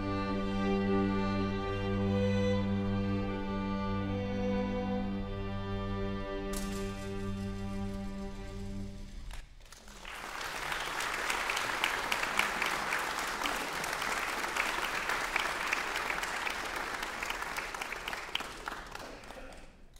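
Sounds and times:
audience applauding: 9.3 - 19.9.

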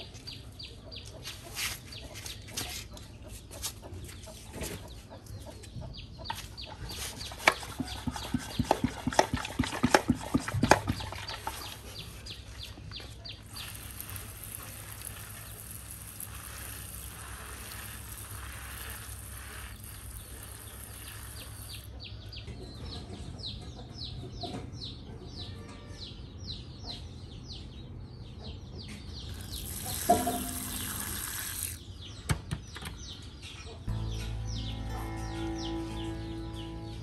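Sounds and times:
bird chirping: 4.3 - 37.0
steady hiss: 13.5 - 21.9
music: 33.9 - 37.0.

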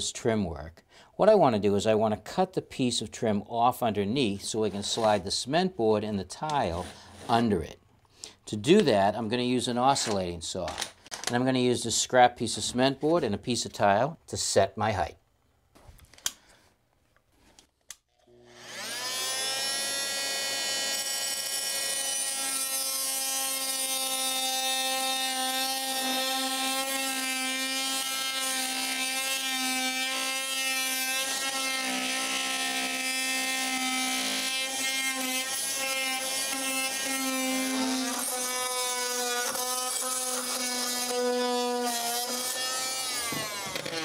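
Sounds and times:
oscillating multi-tool whine: 18.2 - 24.4.

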